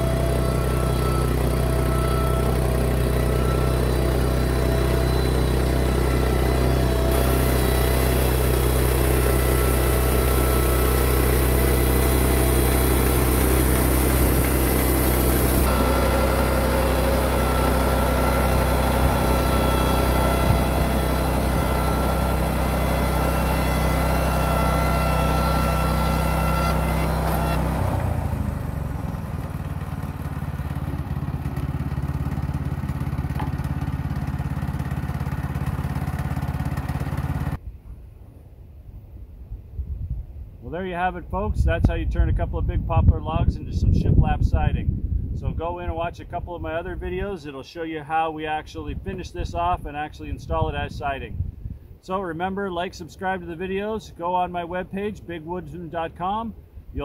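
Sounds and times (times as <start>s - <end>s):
bandsaw mill engine running: 0.0s - 37.6s
band blade cutting wood: 3.2s - 28.2s.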